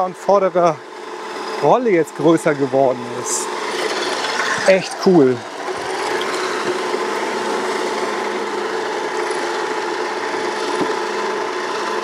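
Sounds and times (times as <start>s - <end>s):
electric mower reel whine: 0.0s - 12.0s
grass cutting rasp: 2.8s - 11.1s.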